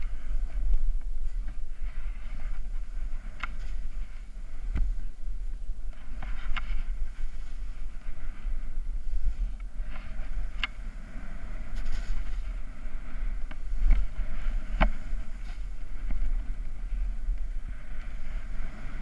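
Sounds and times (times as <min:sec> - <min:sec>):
wind buffeting microphone: 0:00.0 - 0:19.0
snowboard scraping on snow: 0:06.0 - 0:19.0.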